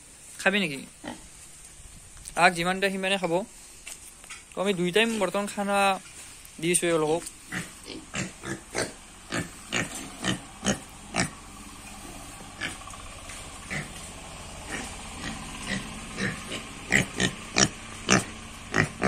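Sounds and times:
pigs grunting: 0:07.3 - 0:19.0.

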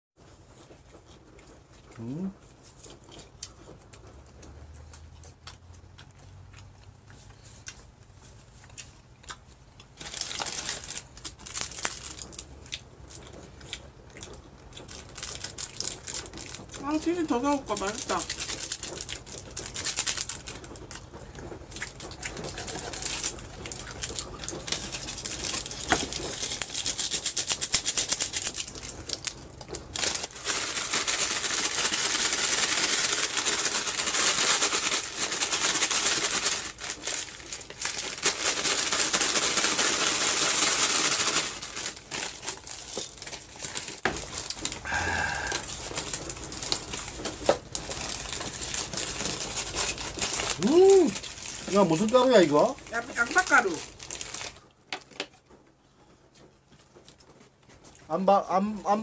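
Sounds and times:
person chewing: 0:00.2 - 0:16.8, 0:18.2 - 0:52.9
wrapping paper crackling: 0:09.9 - 0:58.1.

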